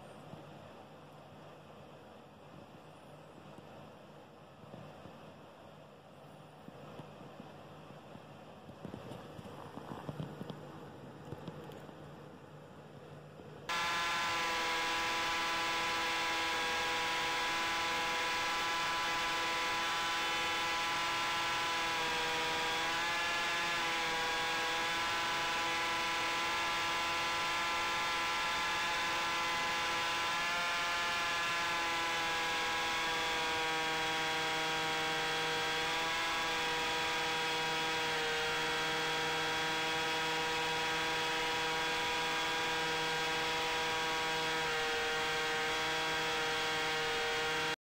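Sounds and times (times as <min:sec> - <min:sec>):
electric motor propeller whine: 0:13.7 - 0:47.8.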